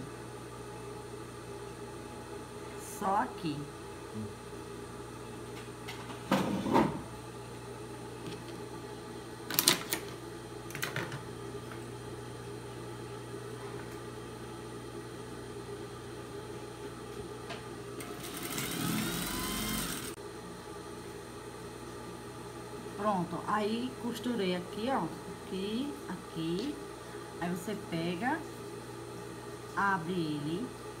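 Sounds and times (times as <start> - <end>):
steady low hum: 0.0 - 18.6, 19.7 - 31.0
sewing machine stitching: 18.0 - 20.1.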